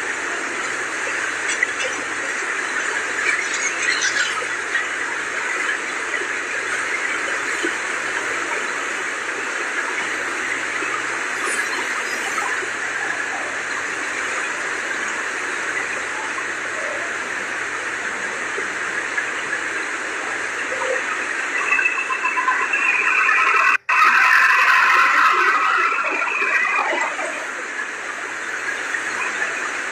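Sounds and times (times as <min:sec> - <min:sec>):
flood water rushing: 0:16.6 - 0:29.9.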